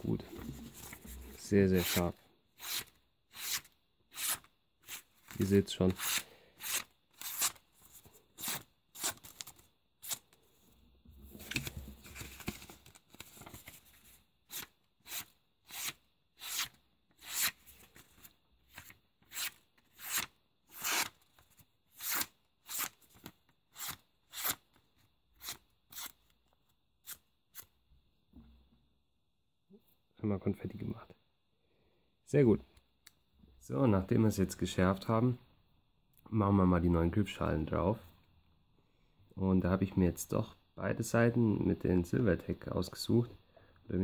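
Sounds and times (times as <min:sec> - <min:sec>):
paper rustling: 0:00.3 - 0:02.0, 0:11.2 - 0:14.7.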